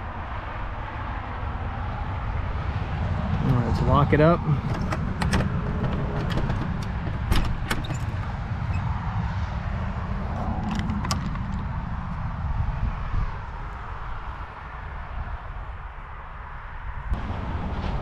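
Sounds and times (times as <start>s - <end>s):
steady low rumble: 0.0s - 15.1s
metal door hasp clicking and rattling: 4.6s - 8.4s.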